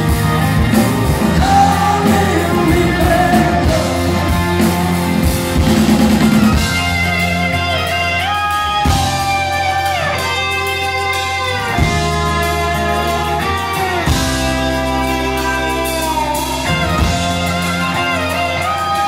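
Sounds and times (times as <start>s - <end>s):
electric guitar lead line: 0.0s - 19.0s
live rock band playing: 0.0s - 19.0s.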